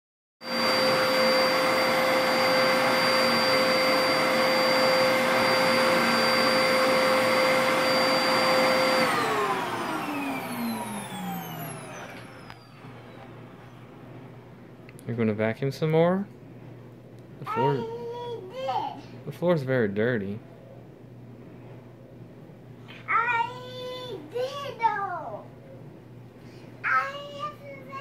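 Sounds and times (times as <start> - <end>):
vacuum cleaner whine: 0.4 - 14.2, 17.5 - 17.8.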